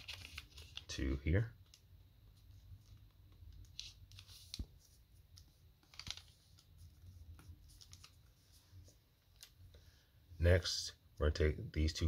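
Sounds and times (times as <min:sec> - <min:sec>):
paper rustling: 0:00.0 - 0:01.0, 0:01.7 - 0:09.6.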